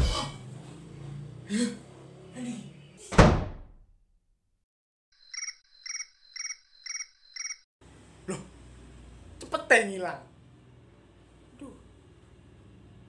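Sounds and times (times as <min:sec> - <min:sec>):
cricket chirps: 0:05.2 - 0:07.7.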